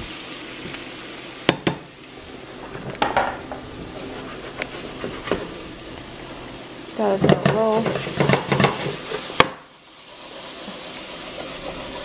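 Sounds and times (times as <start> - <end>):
shrimp sizzling in a frying pan: 0.0 - 12.0
spatula knocking against pan: 7.2 - 9.6.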